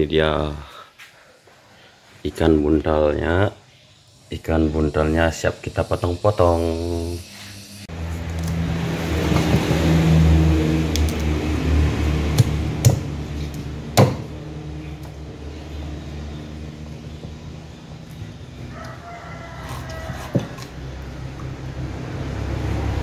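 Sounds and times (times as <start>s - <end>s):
low motor hum: 6.7s - 23.0s
cleaver chopping on wooden block: 12.3s - 14.3s, 19.6s - 20.7s.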